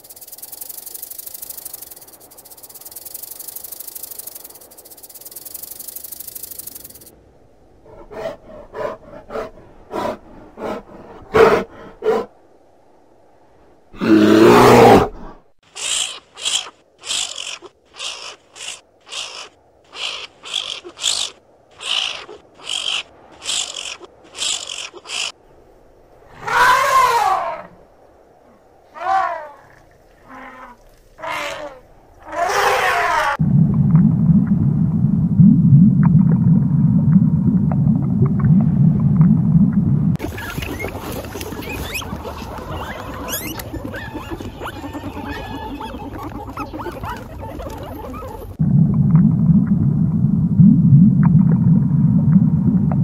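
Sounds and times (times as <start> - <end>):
snake hissing: 0.0 - 7.1, 15.7 - 25.4
falling animal call: 26.3 - 27.8, 28.9 - 33.4, 40.2 - 48.6.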